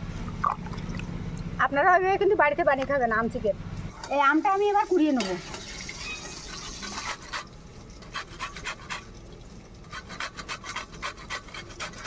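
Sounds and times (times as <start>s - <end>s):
mango scraping on metal grater: 6.7s - 9.1s, 9.8s - 12.0s.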